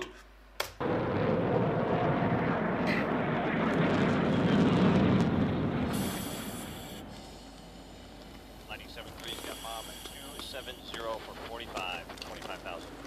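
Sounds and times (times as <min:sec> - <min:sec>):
jet engine rumble: 0:00.8 - 0:13.0.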